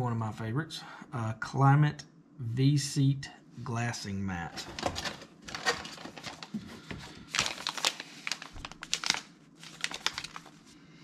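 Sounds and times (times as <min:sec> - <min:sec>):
packaging crinkling: 0:04.6 - 0:10.8.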